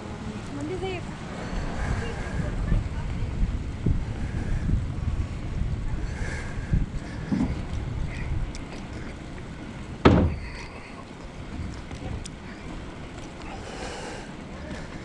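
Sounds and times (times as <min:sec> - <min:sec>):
wind buffeting microphone: 0:00.0 - 0:15.0
sharp thump: 0:10.0 - 0:10.5.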